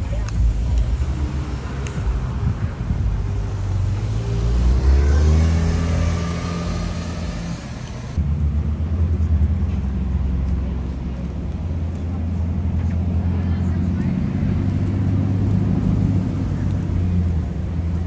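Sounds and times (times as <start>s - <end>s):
car engine running low: 0.0s - 18.0s
car engine pulling away: 0.4s - 8.4s.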